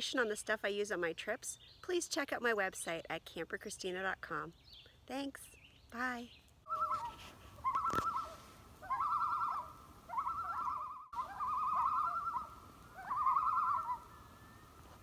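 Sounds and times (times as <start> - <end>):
bird quavering call: 6.7 - 14.7.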